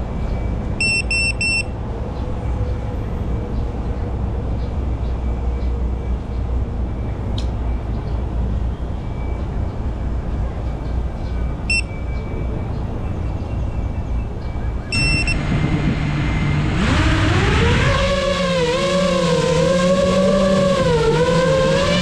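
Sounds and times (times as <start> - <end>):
outdoor background rumble: 0.0 - 22.0
high electronic beeps: 0.3 - 1.7, 11.7 - 12.5, 14.8 - 15.5.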